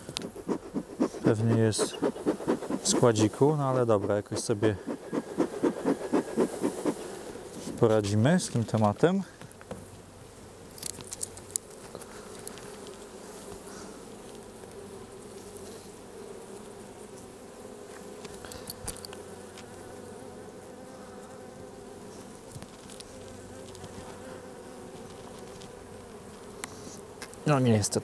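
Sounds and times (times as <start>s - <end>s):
bees humming: 0.0s - 8.1s.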